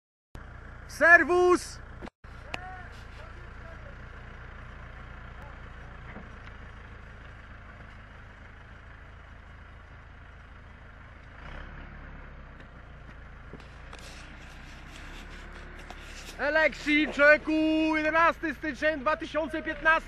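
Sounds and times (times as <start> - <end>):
diesel engine idling: 0.4 - 20.0
crackly rustling: 13.5 - 17.3.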